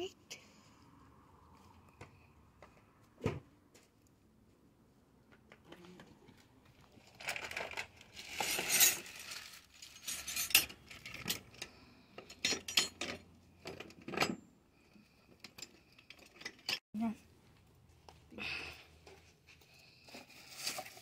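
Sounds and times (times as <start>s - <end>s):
small metal objects clinking: 7.2s - 13.2s.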